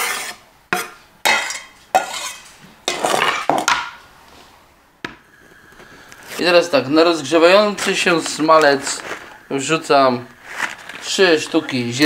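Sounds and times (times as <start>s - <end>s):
knife clinking on metal bowl: 1.3s - 3.1s.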